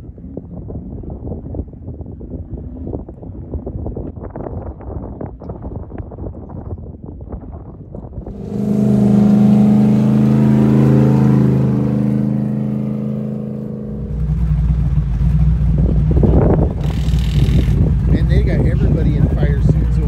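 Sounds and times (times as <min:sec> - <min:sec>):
deep engine rumble: 0:08.2 - 0:20.0
droning engine: 0:08.2 - 0:20.0.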